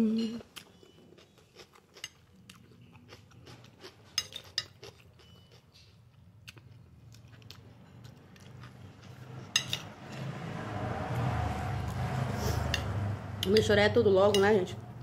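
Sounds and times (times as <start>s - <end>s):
person chewing: 0.4s - 9.5s
fork clinking on plate: 9.5s - 9.9s.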